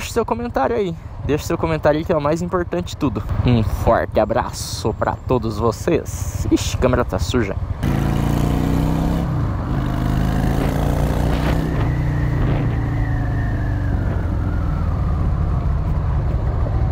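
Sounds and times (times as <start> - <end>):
motorcycle engine accelerating: 7.8 - 16.9.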